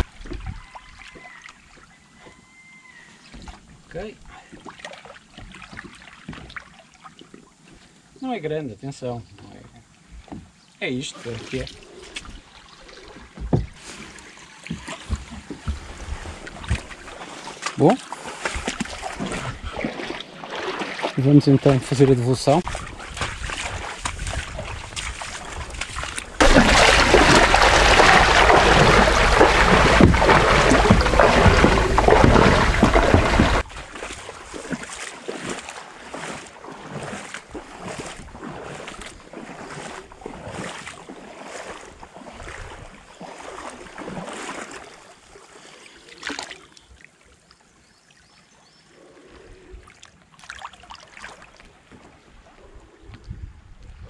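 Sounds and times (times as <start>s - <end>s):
sea water splashing among rocks: 0.0s - 0.4s, 22.6s - 42.0s.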